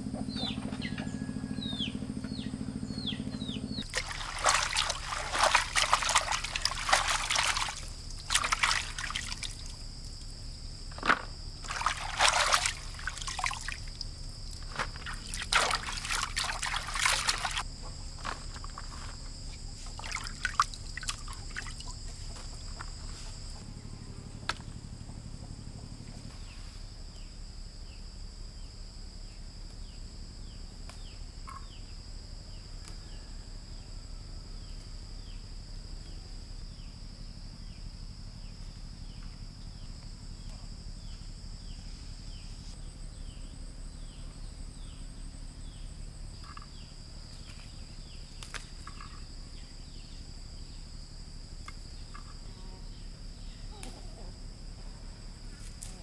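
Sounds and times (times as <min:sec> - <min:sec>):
water trickling and sloshing: 0:03.8 - 0:23.6, 0:48.4 - 0:49.3.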